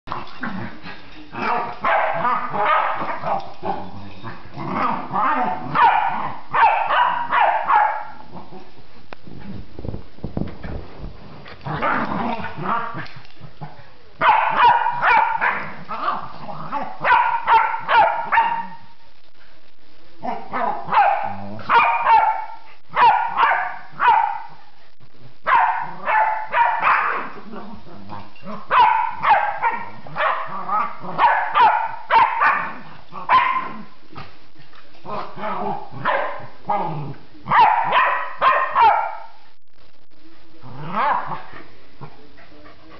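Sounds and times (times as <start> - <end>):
dog barking and yelping: 1.4 - 4.1, 4.7 - 8.3, 14.2 - 19.0, 20.2 - 24.6, 25.4 - 27.4, 28.5 - 33.9, 35.1 - 36.9, 37.5 - 39.4, 40.8 - 41.5
dog barking sharply: 14.2 - 15.6, 17.1 - 18.8, 20.9 - 24.5, 31.2 - 32.7, 37.5 - 39.3.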